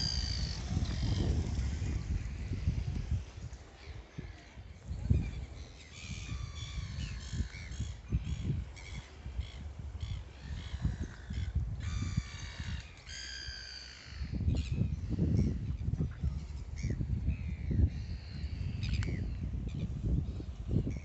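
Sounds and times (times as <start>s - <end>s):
gulls squawking: 0.0s - 2.7s.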